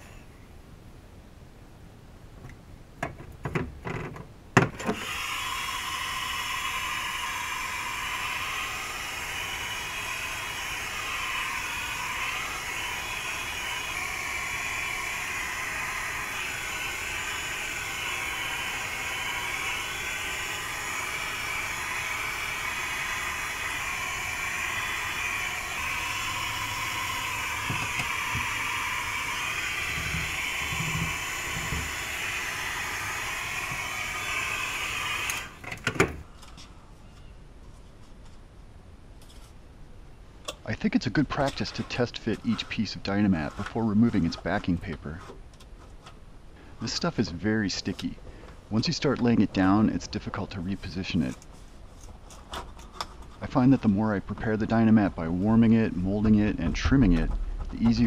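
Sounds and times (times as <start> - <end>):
heat gun blowing air: 4.8 - 36.3.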